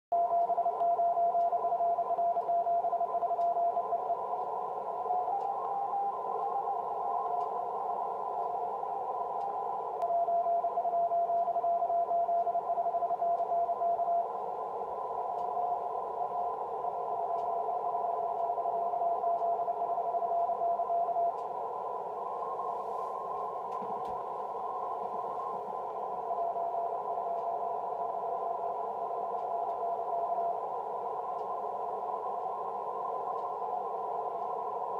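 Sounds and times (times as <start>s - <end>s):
morse code tone: 0.1s - 14.3s
fainter higher morse tone: 0.1s - 34.9s
radio band hiss: 0.2s - 34.9s.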